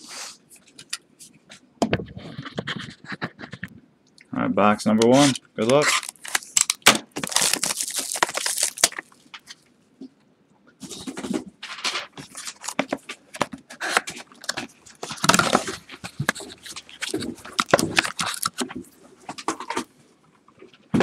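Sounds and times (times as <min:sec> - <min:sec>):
plastic and foil crinkling: 0:05.1 - 0:09.7, 0:10.8 - 0:19.9.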